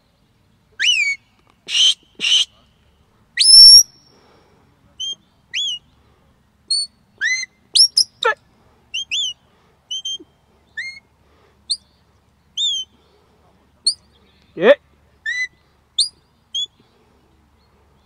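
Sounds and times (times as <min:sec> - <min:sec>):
sharp whistle notes: 0:00.8 - 0:02.6, 0:03.4 - 0:04.1, 0:06.7 - 0:08.2.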